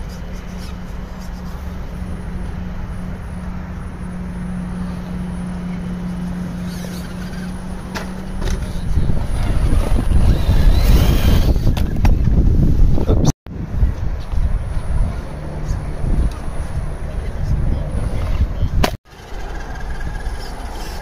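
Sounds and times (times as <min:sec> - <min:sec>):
wind buffeting microphone: 0:00.0 - 0:19.0
toy truck motor whining: 0:06.6 - 0:07.6, 0:08.6 - 0:11.8.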